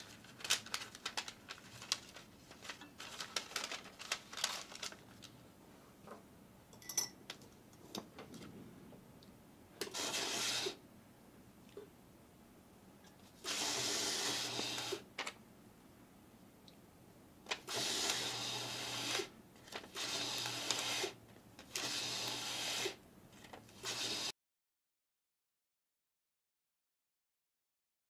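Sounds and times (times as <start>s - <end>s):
electric label dispenser running: 13.5s - 15.1s, 17.6s - 19.3s, 19.9s - 23.0s.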